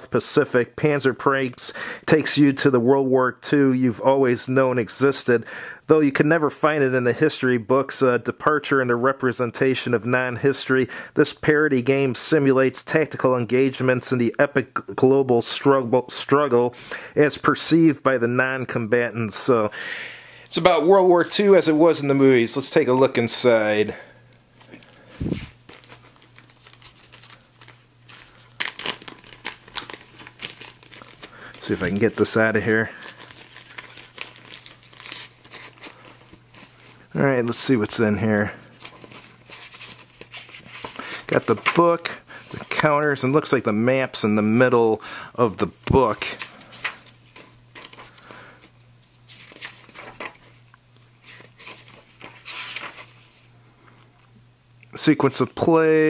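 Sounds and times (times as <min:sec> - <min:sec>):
plastic bag crinkling: 0:24.6 - 0:37.1
paper pages turning: 0:24.6 - 0:42.9, 0:45.6 - 0:53.4.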